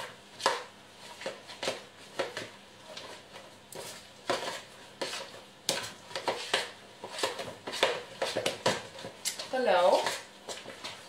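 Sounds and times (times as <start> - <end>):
utensil stirring batter in bowl: 0.0 - 11.0.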